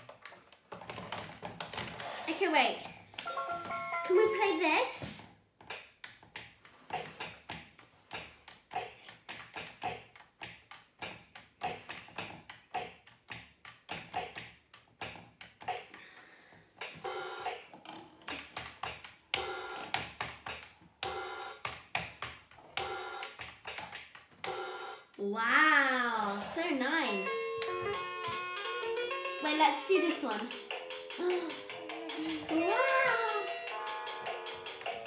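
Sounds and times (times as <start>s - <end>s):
plastic keys tapping: 0.0s - 2.0s, 16.8s - 24.6s, 29.8s - 35.0s
toy electronic keyboard notes: 3.2s - 4.7s, 16.8s - 17.8s, 19.4s - 20.3s, 21.0s - 21.8s, 22.8s - 23.4s, 24.4s - 25.1s, 26.6s - 35.0s.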